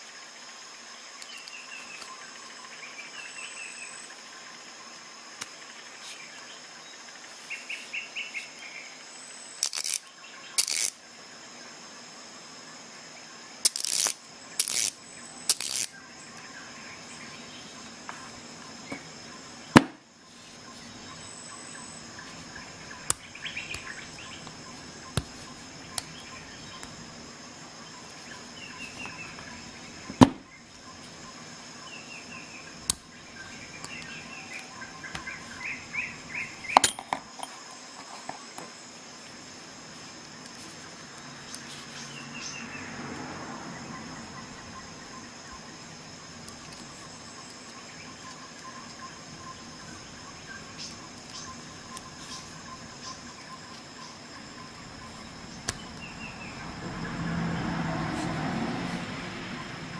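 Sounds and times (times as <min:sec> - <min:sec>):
ratchet clicking: 0:09.6 - 0:11.0, 0:13.6 - 0:15.9
sharp metallic clicks: 0:09.6 - 0:11.0, 0:13.6 - 0:16.0.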